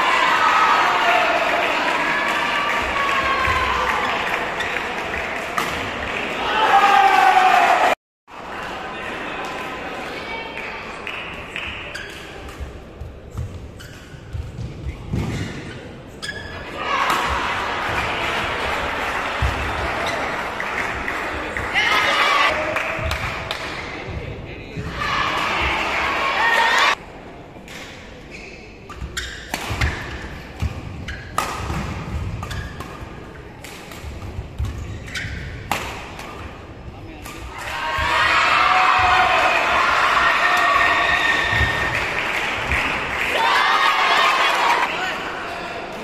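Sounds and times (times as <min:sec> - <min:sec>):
rackets striking shuttlecock: 0:28.9 - 0:36.5.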